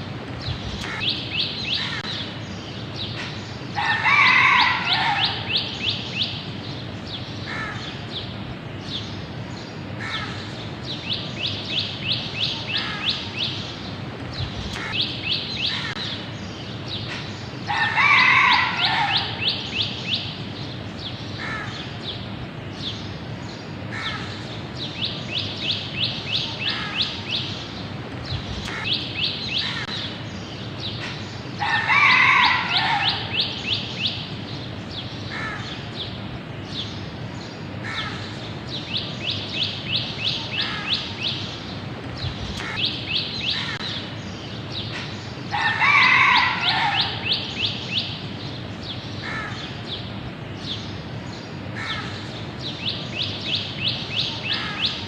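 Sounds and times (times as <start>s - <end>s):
rooster crowing: 3.8s - 5.7s, 17.7s - 19.7s, 31.6s - 33.7s, 45.5s - 47.6s.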